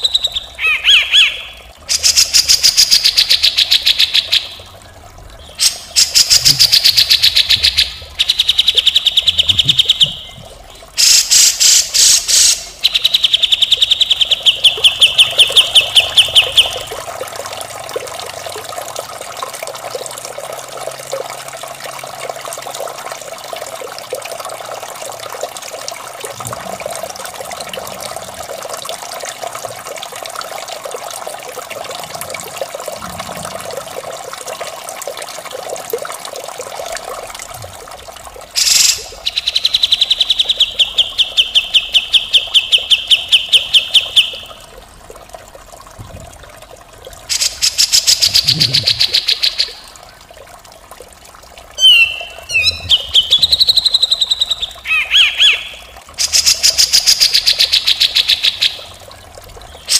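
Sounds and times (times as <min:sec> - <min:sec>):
trickle of running water: 0:00.0 - 0:59.9
bird singing harsh high notes: 0:51.8 - 0:53.0.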